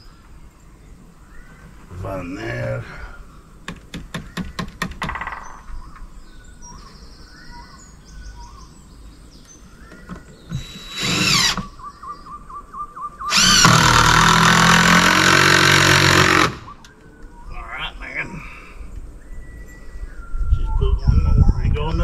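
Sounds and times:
birds singing: 0.0 - 22.0
power drill driving screws: 10.5 - 11.7, 13.3 - 16.7.

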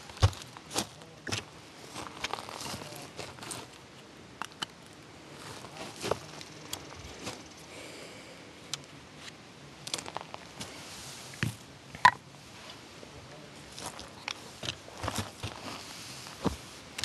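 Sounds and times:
tripod handling clicks and rustles: 8.7 - 10.7, 13.8 - 15.7.

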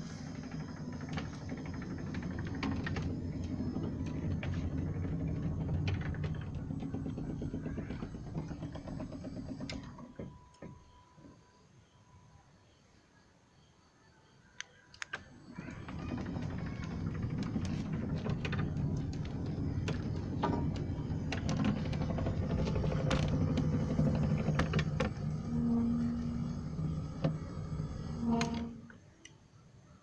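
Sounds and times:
gate motor humming: 0.0 - 11.4, 15.2 - 29.0.

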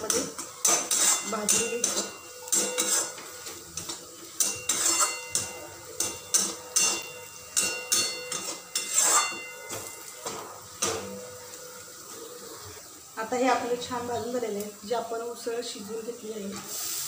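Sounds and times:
metal spatula clanking in pan: 0.0 - 12.1
food frying in oil: 0.0 - 17.0.

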